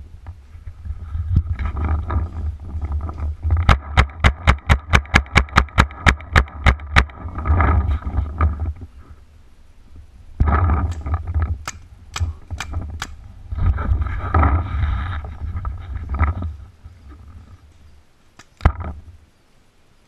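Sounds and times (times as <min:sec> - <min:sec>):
rustling: 0:00.0 - 0:19.8
paintball marker shots: 0:10.4 - 0:13.2.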